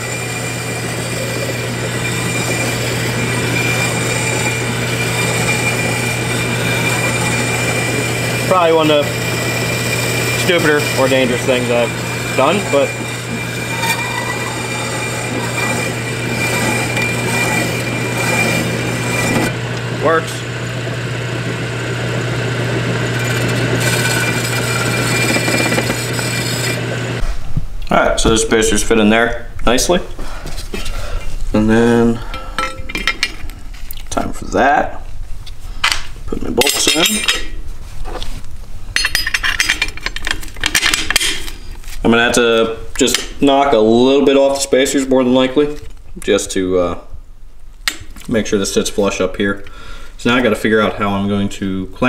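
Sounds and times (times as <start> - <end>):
hissing cutting noise: 0.0 - 27.2
lathe motor hum: 0.0 - 27.2
hacksaw blade scraping metal: 9.9 - 19.5, 23.4 - 26.8.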